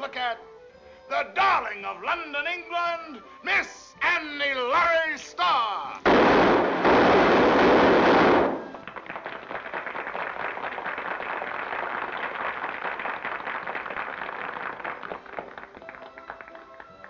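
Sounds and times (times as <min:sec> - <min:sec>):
music: 0:00.0 - 0:17.0
audience applauding: 0:08.3 - 0:17.0.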